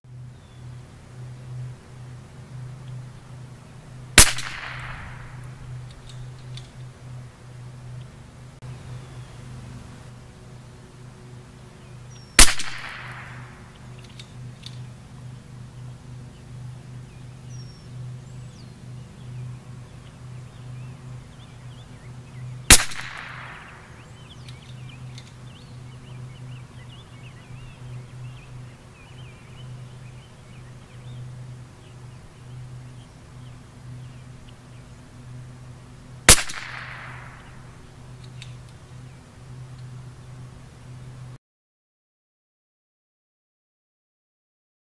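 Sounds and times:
rifle shots: 0:04.2 - 0:05.4, 0:12.4 - 0:13.7, 0:22.7 - 0:24.0, 0:36.3 - 0:37.7.

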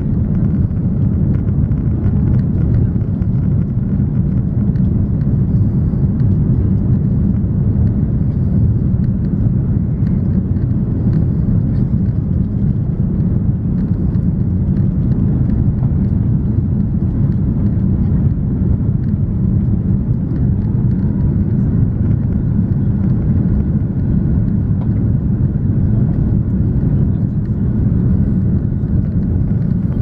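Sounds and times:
rushing air: 0:00.0 - 0:25.0
low engine rumble: 0:00.0 - 0:30.0.

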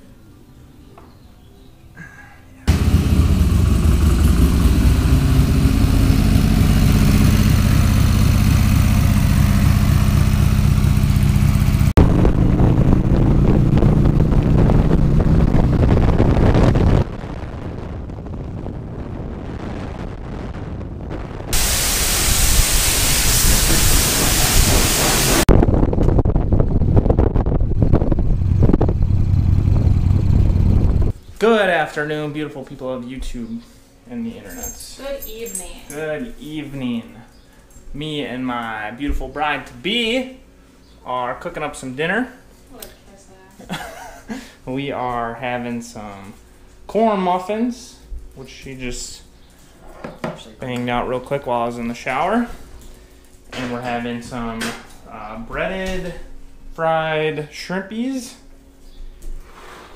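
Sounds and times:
motorcycle engine running: 0:02.7 - 0:17.0, 0:23.7 - 0:31.2
wind rushing: 0:12.0 - 0:31.2.

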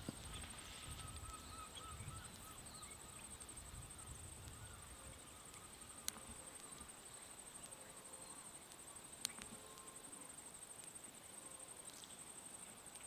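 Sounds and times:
insect trill: 0:00.0 - 0:13.0
faint bird chirps: 0:00.1 - 0:10.6.

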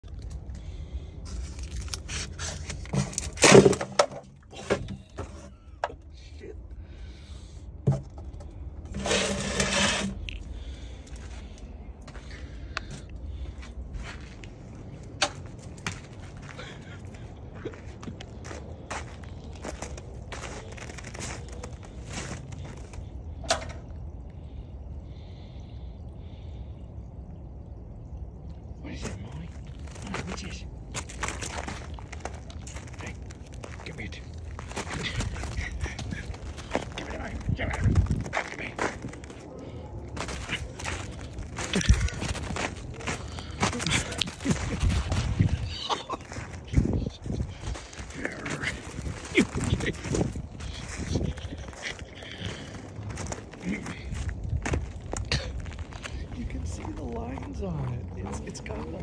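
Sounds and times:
crunch in snow: 0:01.2 - 0:03.8, 0:15.4 - 0:23.1, 0:29.0 - 0:59.0
plastic cup scraping and crackling: 0:08.9 - 0:10.4.

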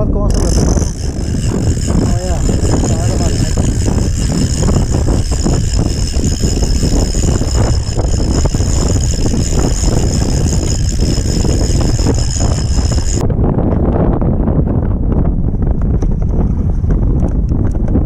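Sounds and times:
wind buffeting microphone: 0:00.0 - 0:18.0
steady high whine: 0:00.3 - 0:13.3.

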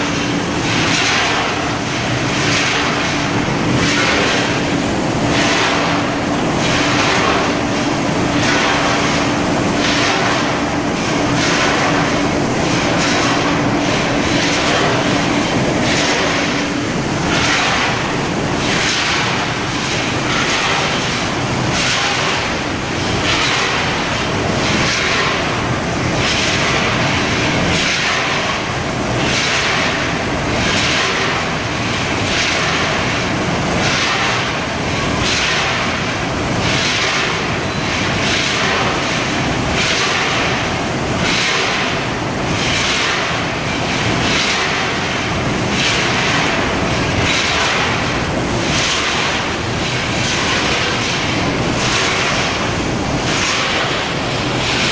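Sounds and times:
bagging machine running: 0:00.0 - 0:54.9.

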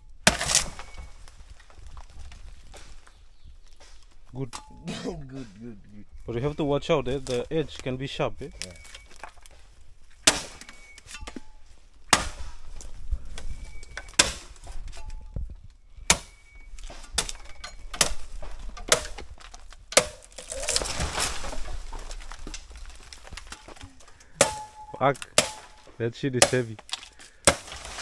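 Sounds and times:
rustling: 0:00.0 - 0:28.0
machete chopping bamboo: 0:00.2 - 0:00.9, 0:10.2 - 0:10.8, 0:12.1 - 0:12.6, 0:14.1 - 0:14.6, 0:16.1 - 0:16.4, 0:18.8 - 0:19.2, 0:19.9 - 0:20.9, 0:24.4 - 0:24.7, 0:25.3 - 0:25.8, 0:26.4 - 0:28.0.

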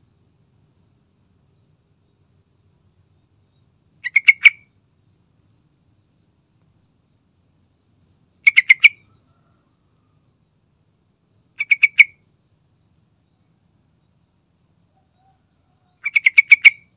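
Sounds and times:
bulbul calling: 0:04.0 - 0:04.8, 0:08.3 - 0:09.6, 0:11.5 - 0:12.4, 0:15.0 - 0:16.9.

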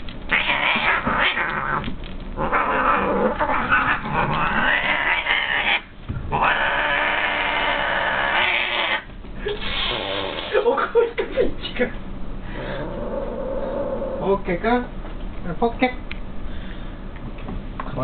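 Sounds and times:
cat crying out: 0:00.3 - 0:10.3.

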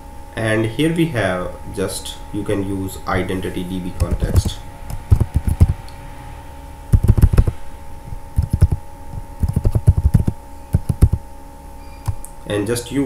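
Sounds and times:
faint steady hum: 0:00.0 - 0:13.0
computer keyboard typing: 0:04.0 - 0:05.8, 0:06.9 - 0:07.6, 0:08.4 - 0:11.2.

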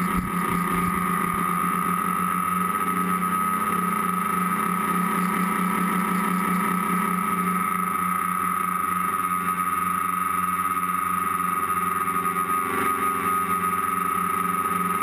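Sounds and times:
electric motors whining: 0:00.0 - 0:07.6
low pulsing propeller drone: 0:00.0 - 0:15.0.

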